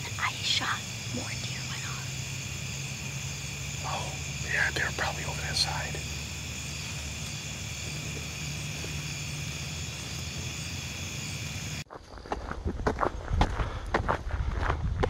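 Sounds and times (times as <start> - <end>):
insects buzzing: 0.0 - 11.9.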